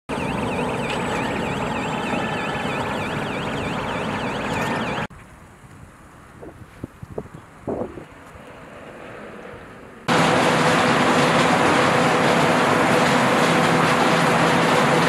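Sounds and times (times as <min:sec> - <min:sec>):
warbling warning alarm: 0:00.1 - 0:05.1
wind-like background noise: 0:00.2 - 0:10.1
heavy truck engine pulling away: 0:10.1 - 0:15.0.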